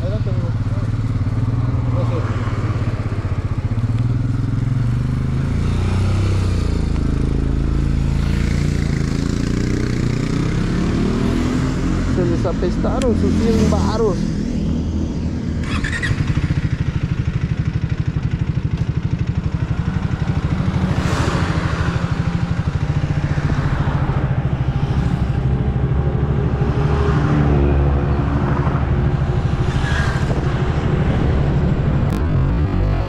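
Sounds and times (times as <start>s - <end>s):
motorcycle engine pulling away: 15.5s - 24.5s.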